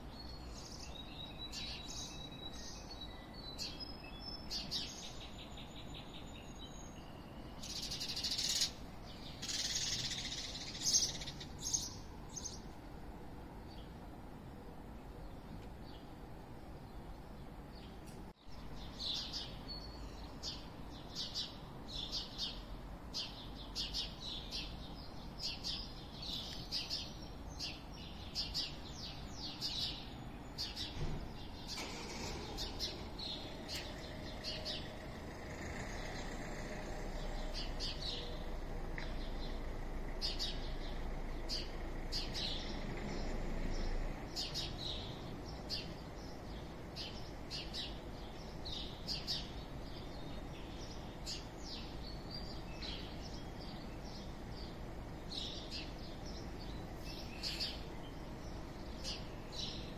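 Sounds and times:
birds chirping: 0.0 - 14.1, 14.8 - 59.9
low town rumble: 0.0 - 59.9.

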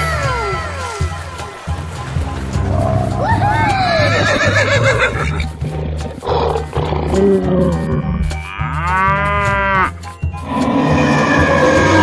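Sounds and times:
background music: 0.0 - 12.0
cow mooing: 6.3 - 12.0.

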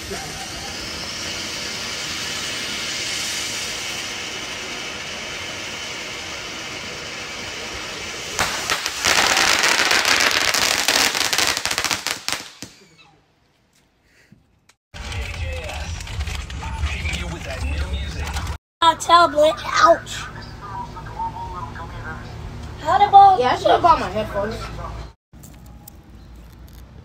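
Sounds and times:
firework rapid crackling: 0.0 - 12.9
firework spraying sparks hissing: 0.0 - 12.9.

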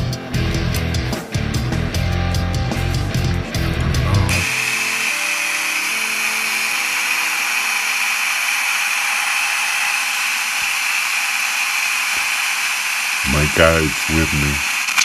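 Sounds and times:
radio static hiss: 4.2 - 8.3, 11.8 - 15.0
faint radio tones: 13.2 - 14.9.

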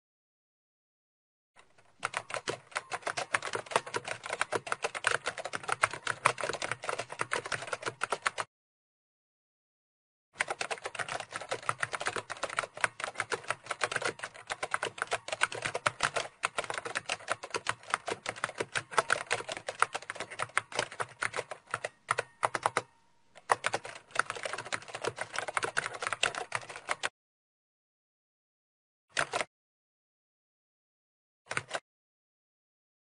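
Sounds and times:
typing on a computer keyboard: 1.6 - 8.5, 10.4 - 27.1, 29.2 - 29.5, 31.5 - 31.8.

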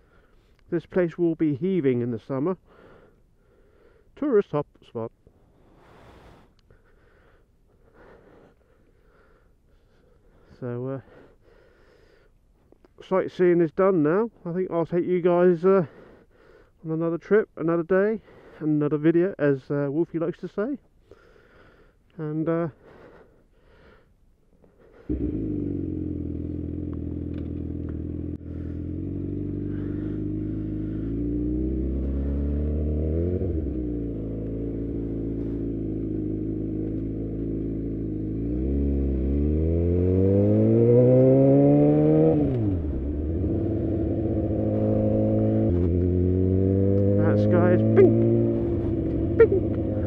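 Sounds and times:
motorcycle engine accelerating: 25.1 - 50.0.

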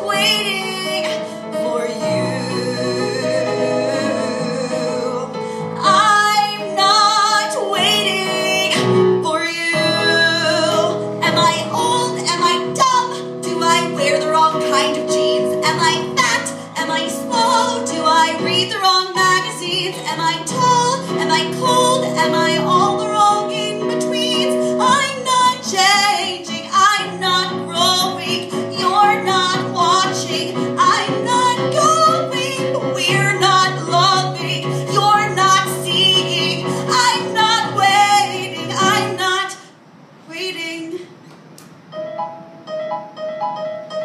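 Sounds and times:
woman singing: 0.0 - 39.7
electronic keyboard chords: 41.8 - 44.0.

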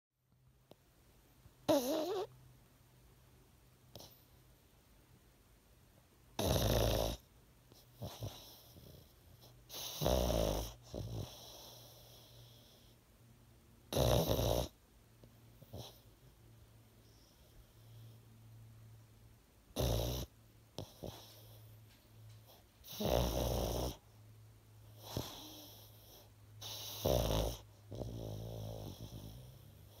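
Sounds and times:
dog snoring: 1.6 - 2.3, 3.9 - 4.4, 6.4 - 13.0, 13.9 - 14.8, 15.6 - 16.2, 17.0 - 18.2, 19.7 - 24.1, 24.8 - 30.0.

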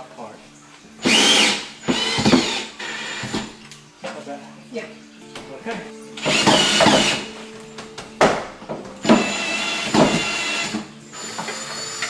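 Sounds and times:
cordless drill whining: 1.0 - 3.5, 6.2 - 7.3, 9.0 - 12.0.

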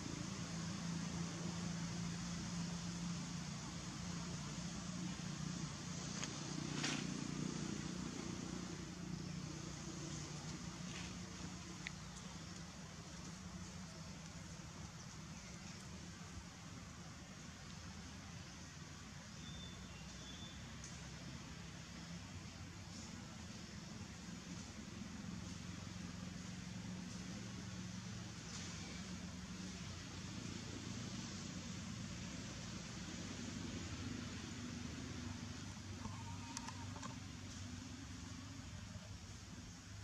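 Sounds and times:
background hiss: 0.0 - 40.0
faint rustle: 6.0 - 8.4, 35.2 - 38.3
faint high chirp: 19.4 - 20.6
low hum: 26.4 - 39.0.

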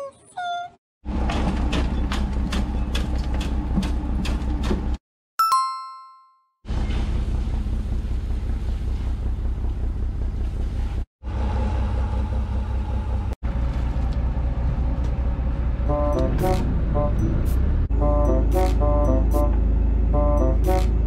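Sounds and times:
boat engine running: 6.7 - 21.0.

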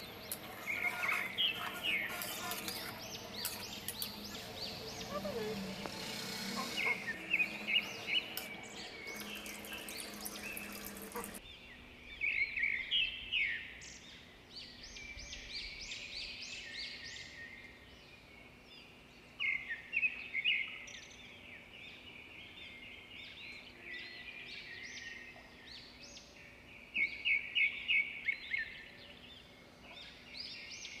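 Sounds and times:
small birds chirping: 0.0 - 23.7.

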